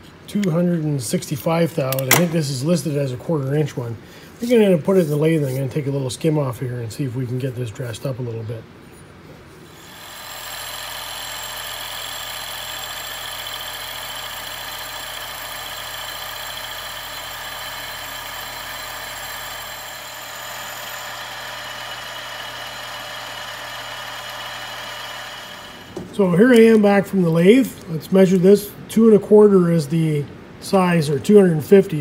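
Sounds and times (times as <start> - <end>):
metal lathe cutting: 9.8 - 26.0.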